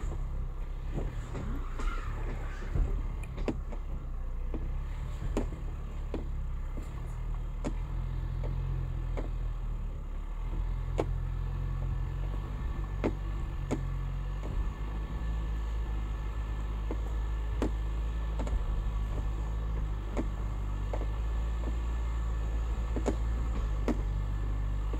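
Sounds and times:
tyres clicking over rocks: 0.0 - 9.6, 10.5 - 24.9
truck engine running low: 0.0 - 24.9.

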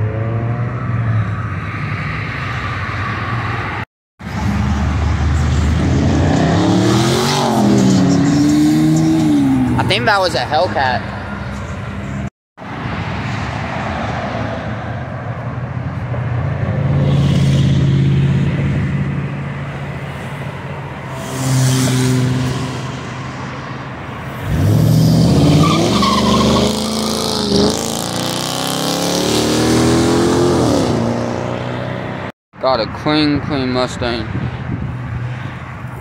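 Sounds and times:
cars driving past: 0.0 - 32.3
car accelerating hard: 24.4 - 32.2.

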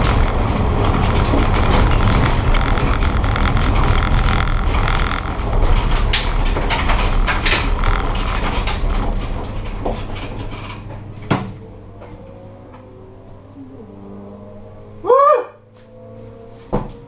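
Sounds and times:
bodywork rattling and clunking: 0.0 - 13.0
race car engine rumble: 0.0 - 17.0.

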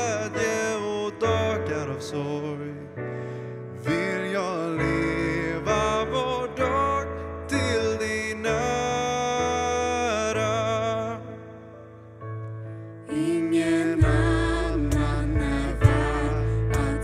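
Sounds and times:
piano: 0.0 - 17.0
voices singing together: 13.1 - 17.0.

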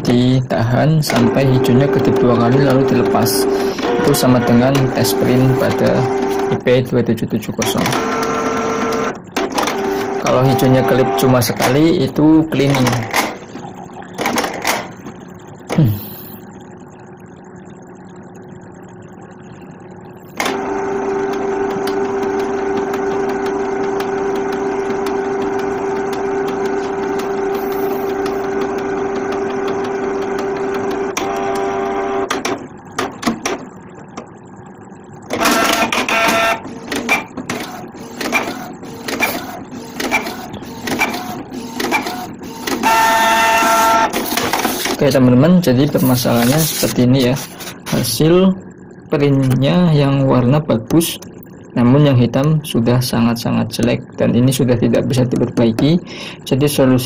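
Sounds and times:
printer motor whine: 0.0 - 57.0
printer clicks and whirs: 0.8 - 16.0, 20.3 - 34.3, 35.2 - 48.2, 53.7 - 56.0.

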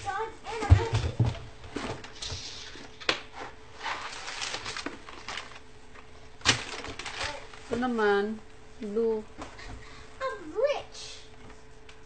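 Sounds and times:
packaging rustling: 3.8 - 7.7.

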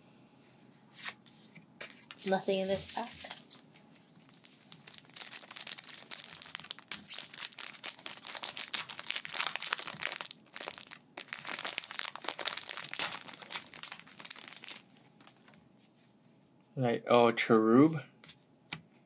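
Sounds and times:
foil wrapper crinkling: 2.0 - 15.6
foil wrapper tearing: 4.2 - 15.6.

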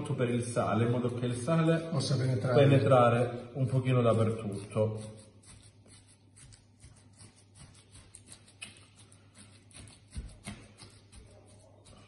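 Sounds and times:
hands patting and squelching meat: 5.5 - 12.0.

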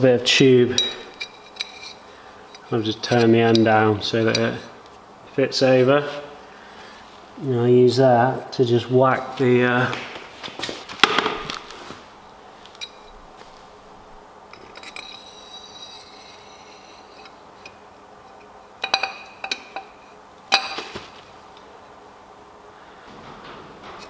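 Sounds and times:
metal tube clinking on metal: 0.3 - 4.6, 12.7 - 13.2, 14.5 - 20.9.

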